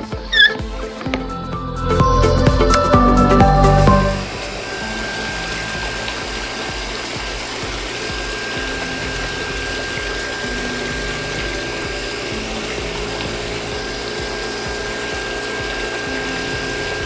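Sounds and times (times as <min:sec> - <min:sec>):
small electric motor whine: 0:04.2 - 0:17.0.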